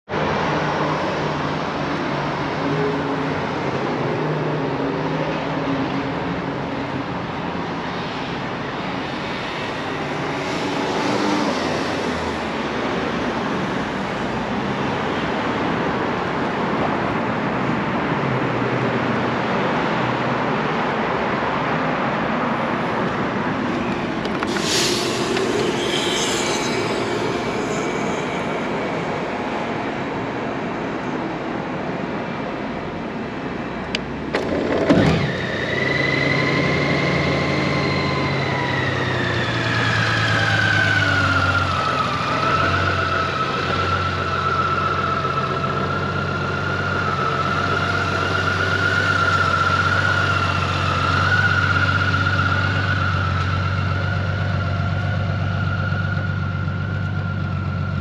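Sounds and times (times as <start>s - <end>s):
street traffic rumble: 0.0s - 58.0s
vehicle squeal: 23.5s - 30.5s, 34.4s - 58.0s.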